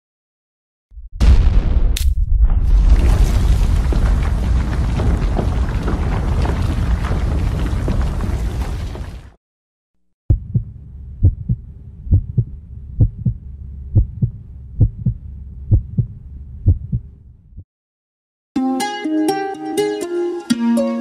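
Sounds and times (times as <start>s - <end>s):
heartbeat thumps: 10.3s - 17.6s
ukulele tune: 18.6s - 21.0s.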